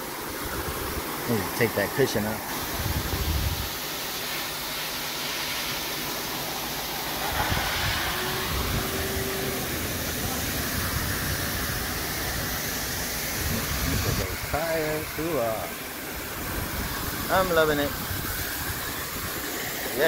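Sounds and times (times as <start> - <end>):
car wash rushing hiss: 0.0 - 20.0.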